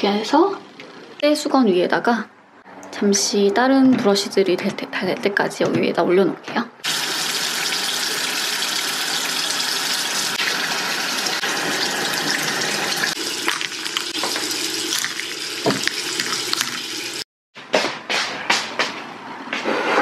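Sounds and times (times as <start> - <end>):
sink tap running: 6.8 - 17.2
small water splashes: 13.1 - 17.2.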